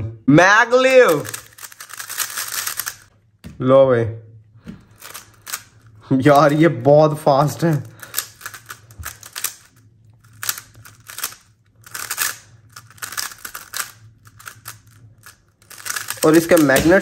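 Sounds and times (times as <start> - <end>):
puzzle cube clicking: 0.9 - 3.1, 5.0 - 5.8, 7.4 - 17.0.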